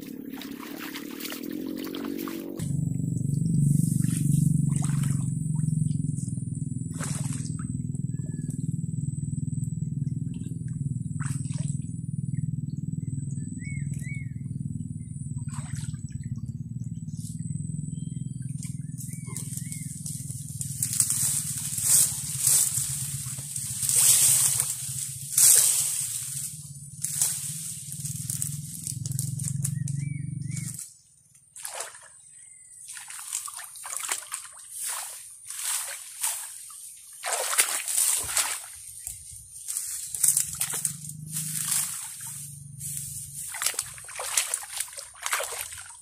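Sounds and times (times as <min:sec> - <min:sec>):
muddy water splashing: 0:00.0 - 0:08.4, 0:10.2 - 0:12.4, 0:15.3 - 0:16.4, 0:18.4 - 0:30.8, 0:31.6 - 0:46.0
low rumble: 0:00.0 - 0:30.8, 0:38.0 - 0:45.6.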